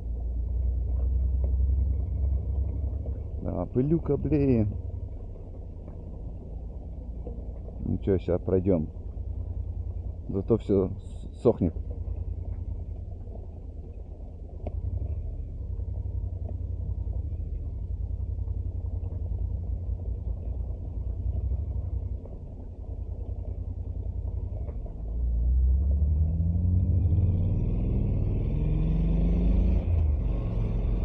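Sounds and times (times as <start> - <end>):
road rumble: 0.0 - 31.0
motorcycle engine accelerating: 24.1 - 31.0.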